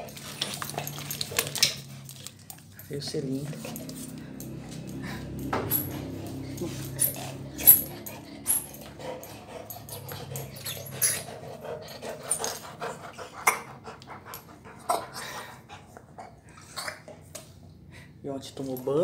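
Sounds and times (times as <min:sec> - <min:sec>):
dog claws clicking on tile: 0:00.0 - 0:02.9, 0:03.5 - 0:12.9
dog gnawing rubber ball: 0:00.0 - 0:15.2.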